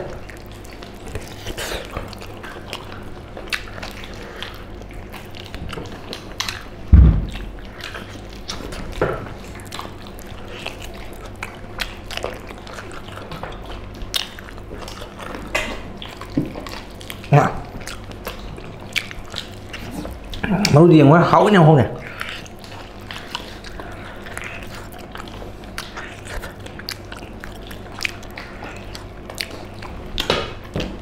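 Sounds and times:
people chewing and gnawing: 0.0 - 31.0
low thump: 6.9 - 7.5.

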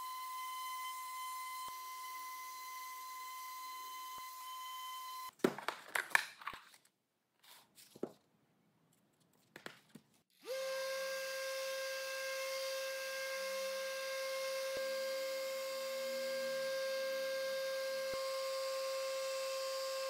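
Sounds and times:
orbital sander running: 0.0 - 5.3, 10.4 - 20.0
power tool humming: 0.0 - 5.3, 10.4 - 20.0.

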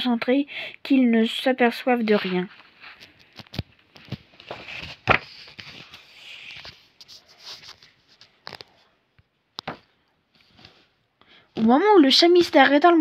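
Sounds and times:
paper rustling: 2.0 - 8.8
book pages clicking and knocking: 2.8 - 10.8.

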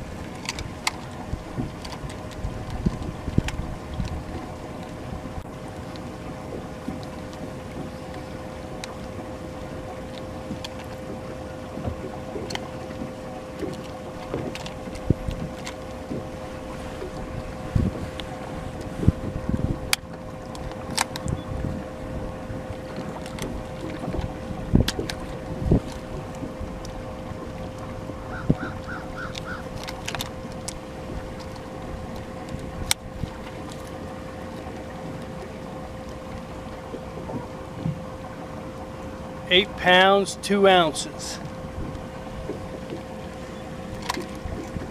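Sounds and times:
wind buffeting microphone: 0.0 - 5.6, 9.1 - 33.7
steady mid-pitched hum: 0.0 - 44.9
water around a boat: 0.0 - 44.9.

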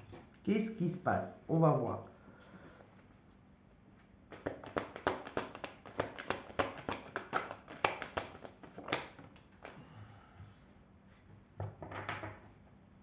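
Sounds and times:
cards being shuffled: 4.0 - 9.8.

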